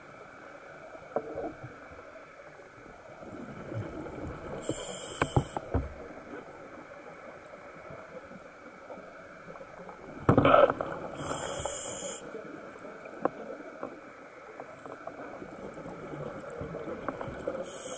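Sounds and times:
regulator air hiss: 4.6s - 5.7s, 11.1s - 12.4s, 17.6s - 17.9s
exhaled bubbles underwater: 15.0s - 17.9s.

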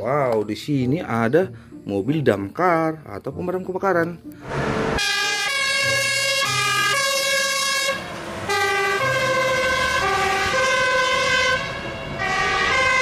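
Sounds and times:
fire engine two-tone siren: 4.4s - 13.0s.

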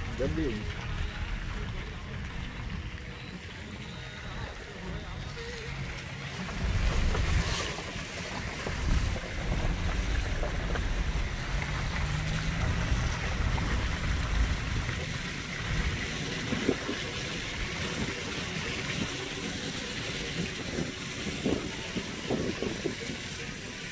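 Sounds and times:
vehicle road rumble: 0.0s - 23.9s
wind buffeting microphone: 20.2s - 23.7s.

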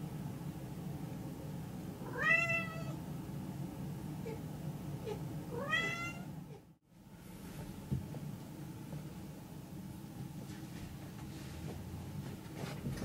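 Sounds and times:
steady low hum: 0.0s - 13.0s
cat meowing: 2.0s - 3.0s, 5.0s - 6.3s.

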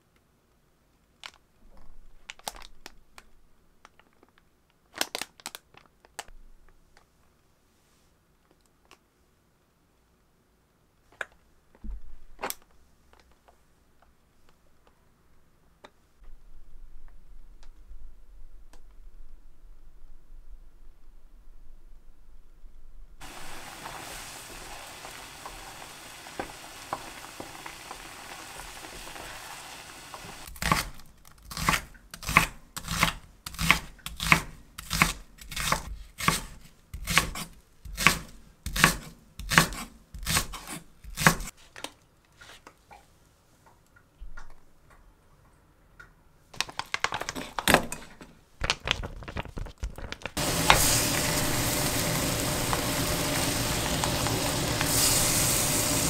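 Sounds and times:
food sizzling in a pan: 23.2s - 30.5s, 50.4s - 56.0s
knife slicing onion on wooden board: 30.5s - 41.5s.

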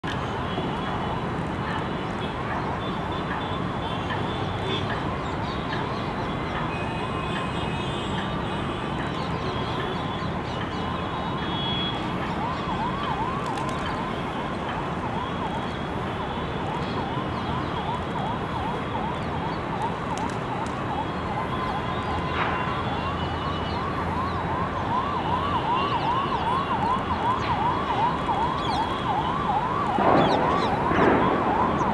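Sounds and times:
steady background noise: 0.0s - 31.9s
siren sweeping up and down: 17.8s - 31.9s.

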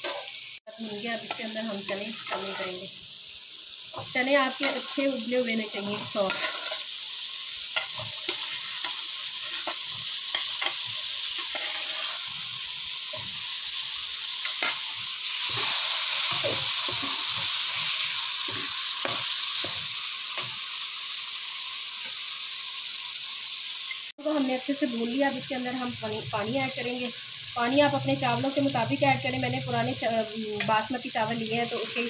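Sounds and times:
metal spoon scraping a pan: 0.0s - 0.4s, 1.2s - 2.9s, 4.0s - 7.0s, 7.7s - 13.4s, 14.4s - 20.6s
chickpeas sizzling in ghee: 0.0s - 32.0s.

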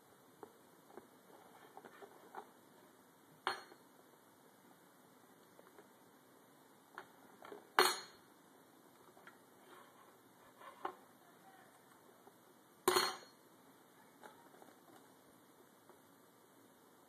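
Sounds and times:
metal spoon clinking on table: 7.8s - 8.2s, 12.9s - 13.4s.

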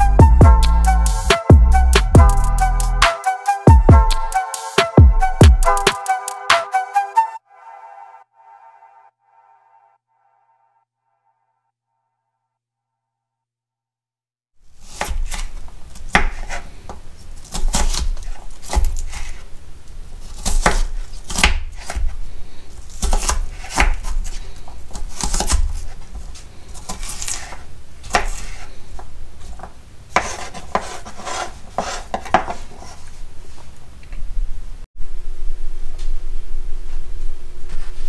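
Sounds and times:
knife chopping onion on wood: 14.9s - 19.4s, 20.3s - 22.2s, 22.9s - 26.0s, 26.7s - 33.0s.

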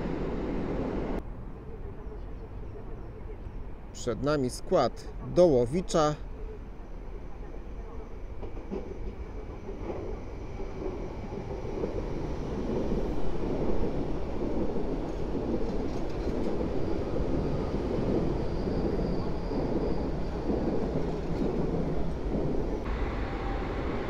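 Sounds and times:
train wheels rumbling on rails: 7.4s - 24.0s
train hiss: 22.9s - 24.0s.

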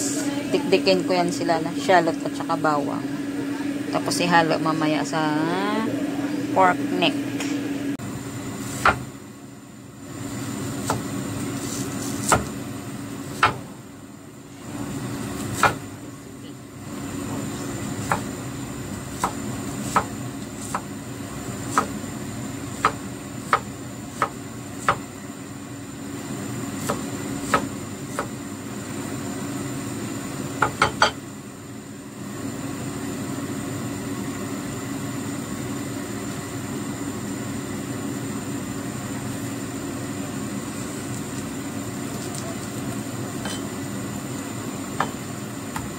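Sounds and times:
steady hum: 0.0s - 45.9s
cleaver chopping on wooden board: 8.8s - 9.0s, 13.4s - 13.6s, 15.6s - 15.8s, 18.0s - 18.3s, 19.2s - 20.1s, 21.7s - 22.0s, 22.8s - 25.0s, 26.8s - 28.3s.

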